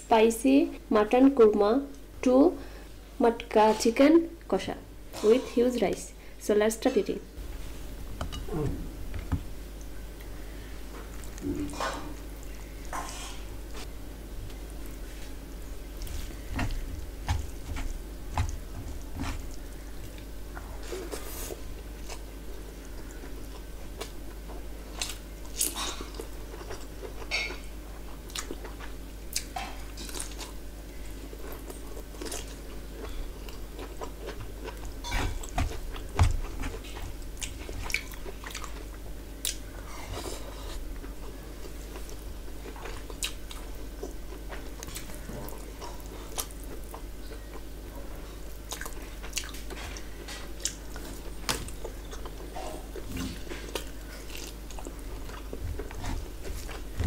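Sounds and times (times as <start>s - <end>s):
person chewing food: 14.5s - 57.0s.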